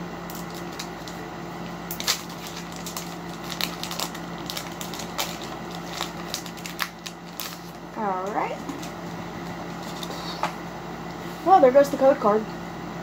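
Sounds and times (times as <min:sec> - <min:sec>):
foil wrapper crinkling and tearing: 0:00.3 - 0:01.2, 0:01.8 - 0:09.0.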